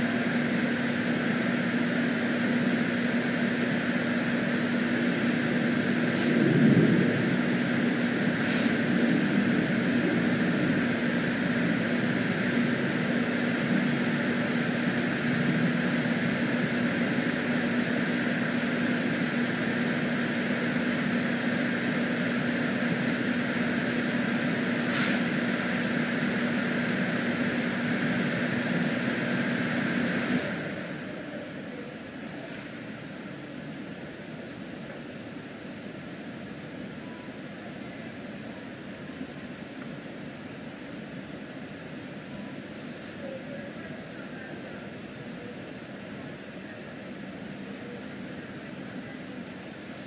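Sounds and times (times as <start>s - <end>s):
low mechanical hum: 0.0s - 50.0s
even hiss: 8.1s - 9.0s, 24.8s - 25.4s.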